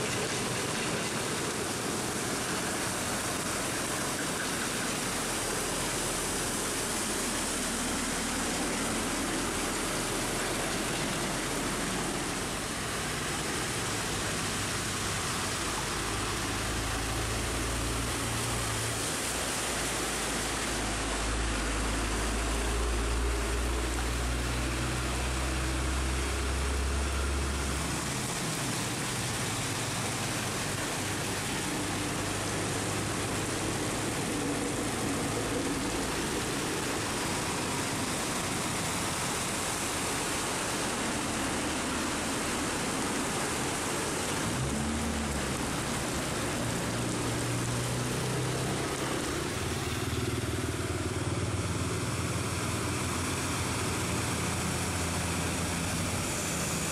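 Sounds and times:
heavy rain: 0.0s - 56.9s
truck engine droning past: 44.3s - 56.9s.

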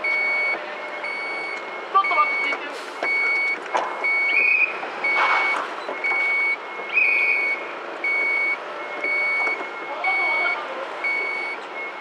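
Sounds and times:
reversing alarm beeping: 0.0s - 12.0s.

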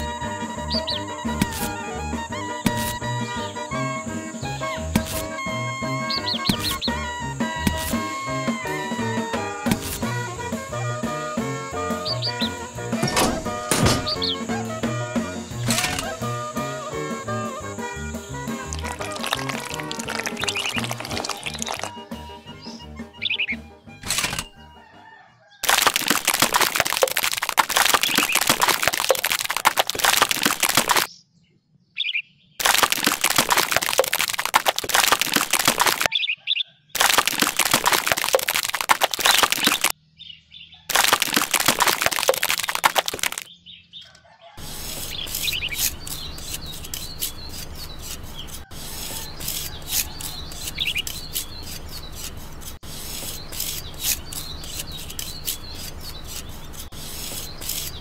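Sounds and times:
trowel scraping wet concrete: 2.6s - 3.0s, 4.8s - 5.4s, 7.6s - 8.1s, 9.7s - 10.2s, 44.6s - 58.0s
wet concrete pouring and splashing: 18.6s - 22.1s, 25.6s - 31.1s, 32.6s - 36.1s, 37.0s - 39.9s, 40.9s - 43.5s.

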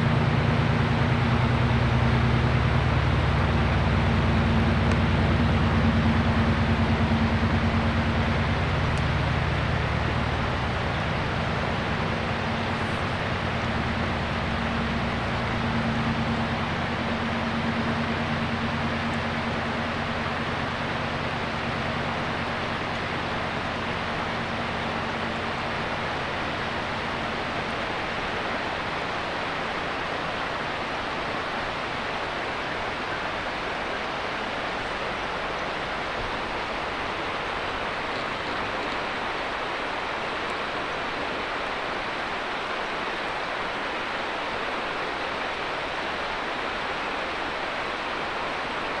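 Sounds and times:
river rushing: 0.0s - 49.0s
train diesel engine drone: 0.0s - 49.0s.

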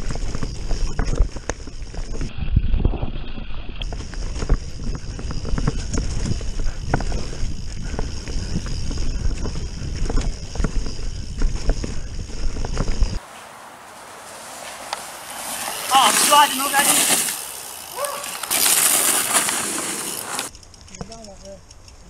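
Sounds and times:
bike chain and frame rattling: 0.0s - 2.3s, 3.8s - 13.2s, 14.1s - 22.0s
tyres rumbling over dirt: 13.2s - 20.5s.

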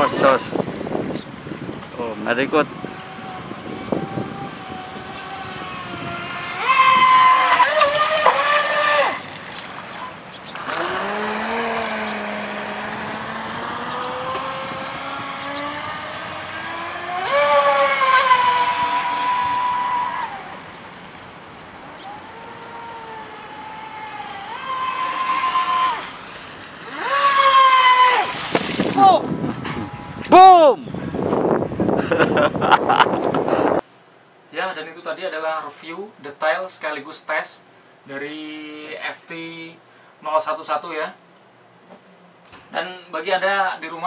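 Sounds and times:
rc boat motor whining: 0.0s - 30.3s.

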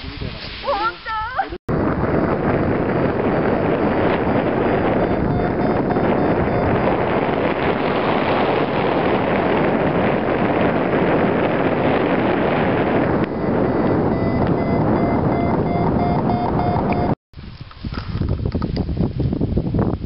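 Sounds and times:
wind rushing over microphone: 0.0s - 20.0s
variometer beeping rapidly: 2.2s - 8.8s, 11.5s - 17.2s.

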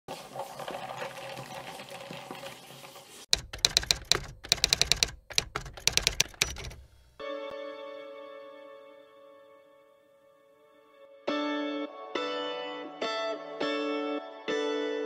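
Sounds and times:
cola fizzing: 0.1s - 3.3s
typewriter keys clacking: 3.3s - 7.0s.

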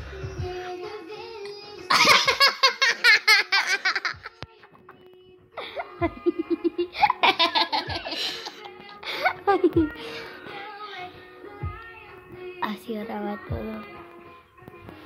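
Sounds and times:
faint background music: 0.0s - 15.0s
high-pitched laughter: 1.9s - 4.3s, 5.7s - 9.9s.

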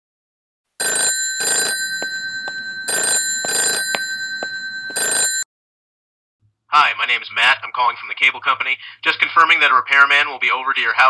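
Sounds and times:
telephone ringing: 0.8s - 5.4s.

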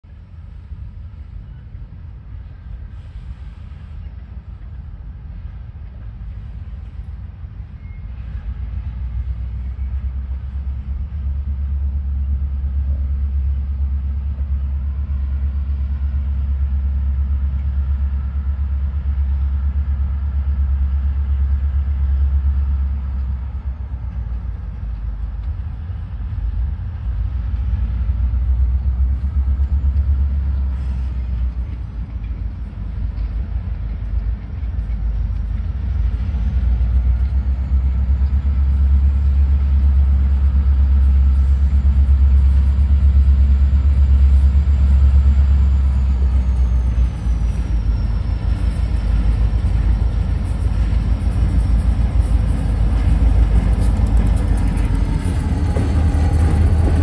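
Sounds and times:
diesel locomotive engine running: 0.0s - 57.0s.

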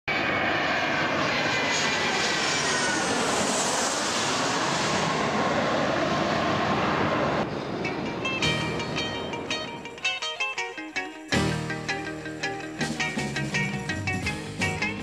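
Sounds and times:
jet airliner passing overhead: 0.1s - 11.0s.

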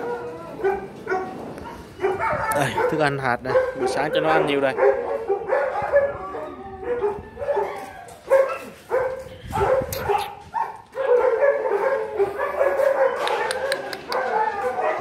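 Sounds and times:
dogs barking and yipping: 0.0s - 15.0s.

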